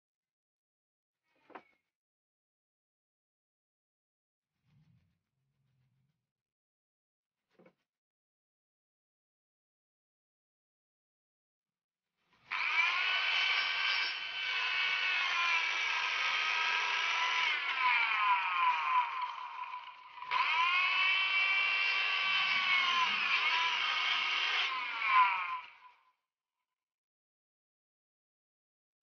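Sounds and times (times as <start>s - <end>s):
electric planer whining: 12.5s - 25.9s.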